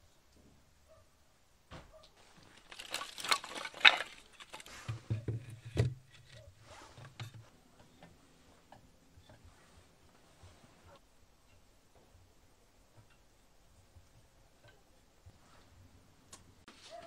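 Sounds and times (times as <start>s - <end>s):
dull wooden thumps: 1.7s - 7.5s
firewood knocking and scraping: 1.7s - 9.7s.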